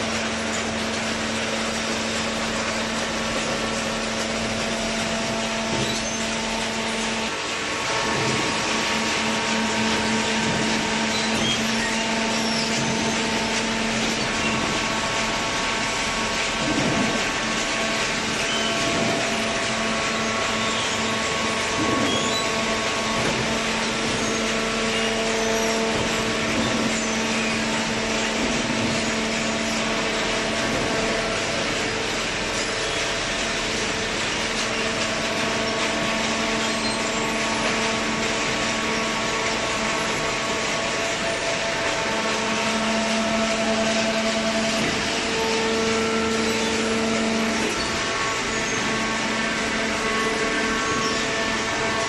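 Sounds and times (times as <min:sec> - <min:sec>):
baling machinery running: 0:00.0 - 0:52.0.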